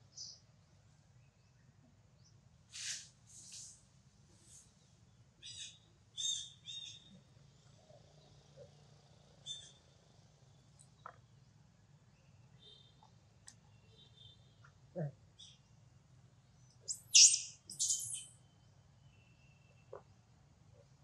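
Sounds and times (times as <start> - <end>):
soft hissy rustles: 2.7 - 4.8
high-pitched animal chirps: 16.9 - 18.3.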